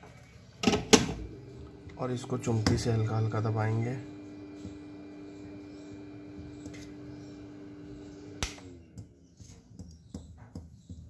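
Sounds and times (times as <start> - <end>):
hot air station blowing with hum: 0.6 - 8.8
switch click: 8.4 - 8.7.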